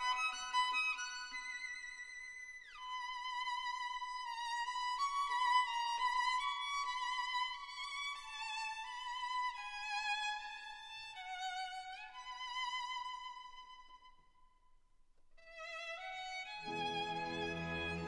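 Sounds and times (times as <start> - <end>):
solo violin melody: 2.7 - 14.0, 15.4 - 18.0.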